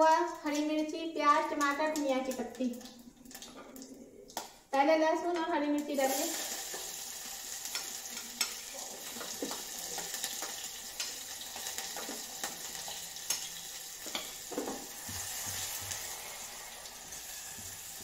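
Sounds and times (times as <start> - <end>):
garlic sizzling in hot oil: 5.9 - 18.0.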